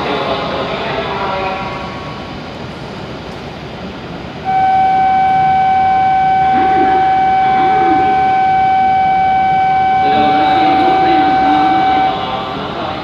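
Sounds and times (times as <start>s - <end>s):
electronic ringing bell: 4.5s - 12.2s
person speaking: 10.0s - 12.9s.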